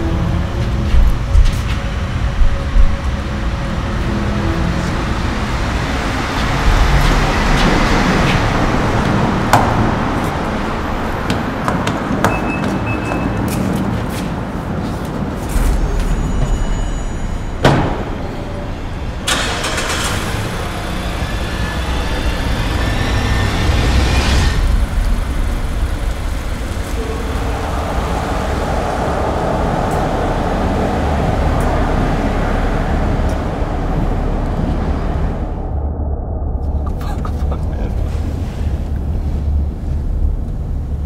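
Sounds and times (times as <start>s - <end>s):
car engine starting and running: 0.0s - 12.1s, 15.5s - 35.9s.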